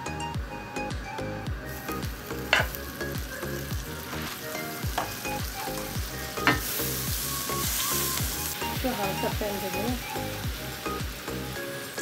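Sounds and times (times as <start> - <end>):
background music with steady beat: 0.0 - 12.0
butter sizzling in hot oil: 1.6 - 12.0
sharp tap on frying pan: 2.5 - 2.8, 6.5 - 6.7.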